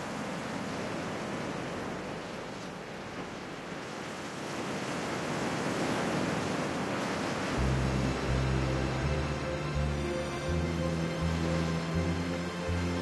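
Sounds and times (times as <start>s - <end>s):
waves breaking on beach: 0.0s - 13.0s.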